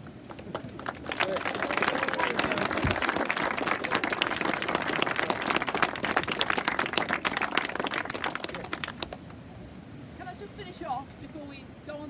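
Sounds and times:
small group applauding: 0.2 - 9.4.

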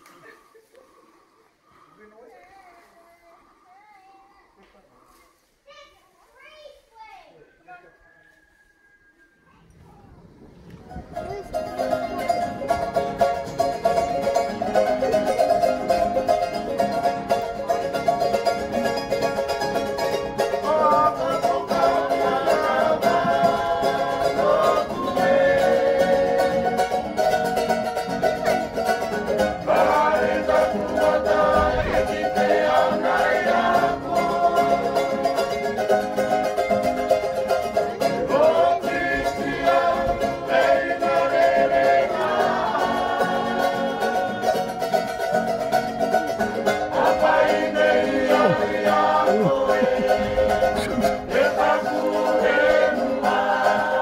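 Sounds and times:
plucked strings music: 11.0 - 54.0
person singing: 20.5 - 27.1, 29.6 - 35.8, 46.9 - 54.0.

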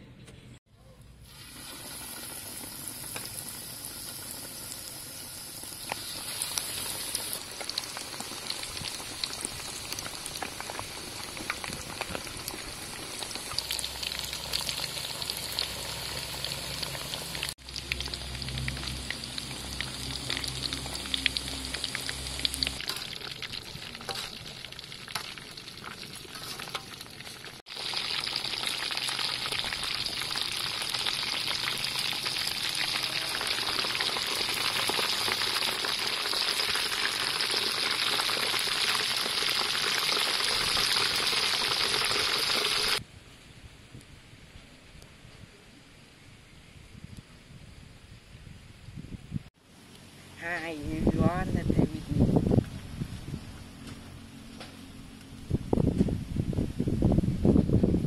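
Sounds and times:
chicken deep-frying in oil: 0.8 - 43.0.

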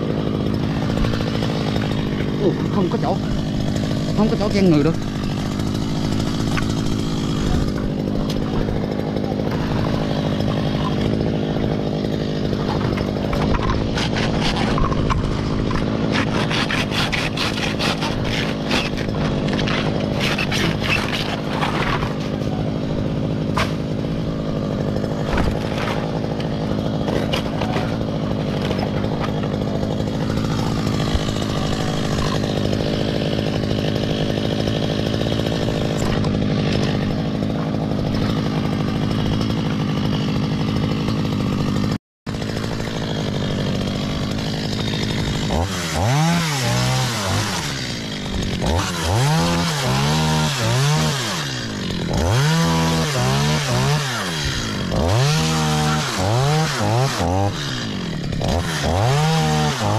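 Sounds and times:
machete chopping stems: 0.0 - 22.6, 23.3 - 40.2
chainsaw idling: 0.0 - 59.9.

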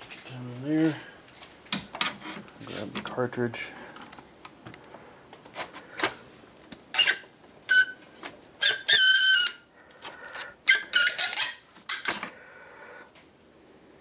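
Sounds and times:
plastic cartridge squeaking: 6.9 - 8.0, 8.6 - 9.6, 10.6 - 12.1.

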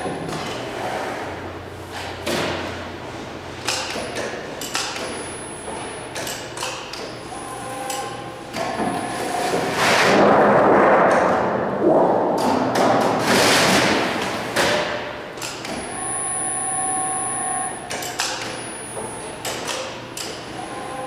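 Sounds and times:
machine whine: 15.7 - 19.4.

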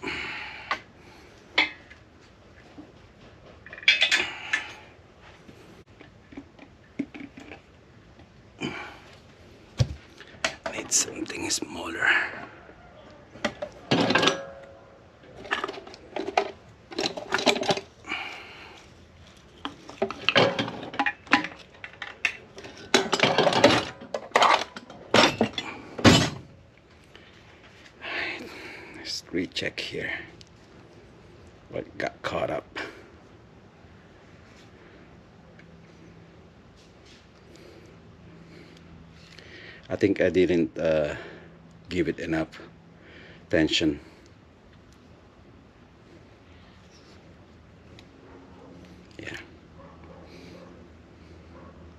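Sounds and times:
metal parts clattering: 3.6 - 4.8, 15.4 - 17.9, 19.6 - 26.4
metal tools clinking and knocking: 3.6 - 4.8, 13.4 - 14.8, 15.4 - 17.9, 19.6 - 26.4.

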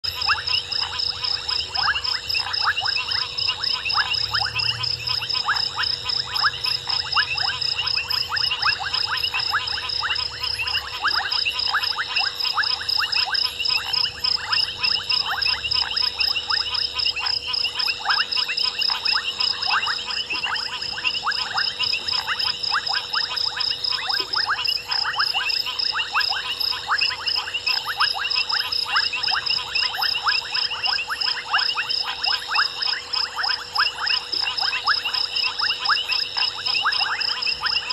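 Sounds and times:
frogs clicking calls: 0.0 - 37.9.

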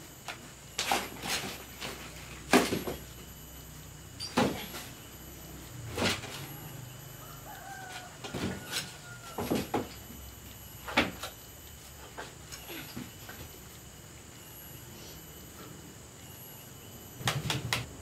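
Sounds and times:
faint drawn-out squeak: 4.2 - 5.0.

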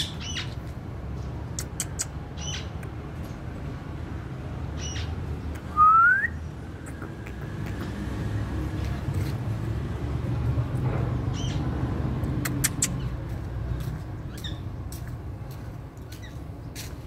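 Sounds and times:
rising whistle: 5.8 - 6.4.

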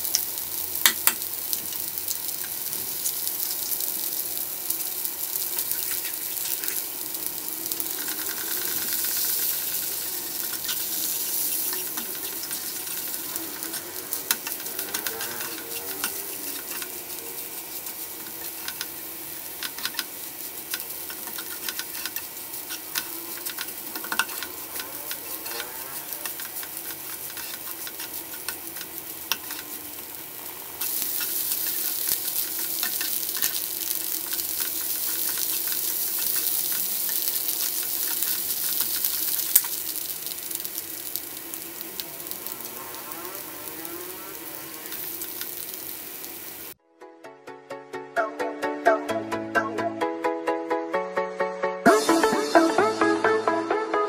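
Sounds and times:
food sizzling in a frying pan: 0.0 - 46.8
spatula scraping a pan: 7.9 - 30.1, 30.8 - 41.2.

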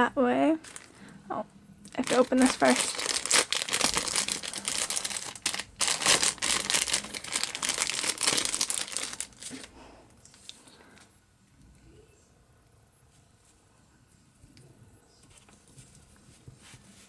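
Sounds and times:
plastic bag crinkling: 0.6 - 1.1, 1.9 - 9.7.

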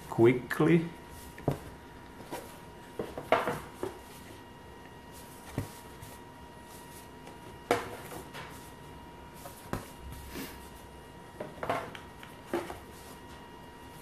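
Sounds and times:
cardboard tiles knocking and rustling: 1.4 - 4.2, 5.3 - 6.2, 7.3 - 8.7, 11.4 - 13.2.

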